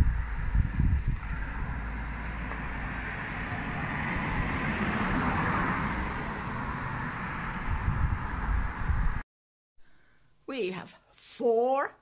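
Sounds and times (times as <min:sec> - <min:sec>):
car passing: 0:00.0 - 0:09.2
low rumble: 0:00.0 - 0:09.2.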